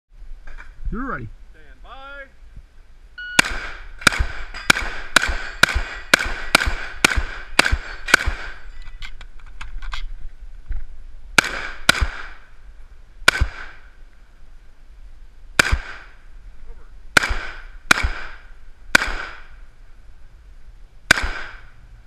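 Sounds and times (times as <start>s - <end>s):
shotgun shots: 3.4s - 8.7s, 11.4s - 12.5s, 13.2s - 13.9s, 15.6s - 16.2s, 17.2s - 19.6s, 21.1s - 21.8s.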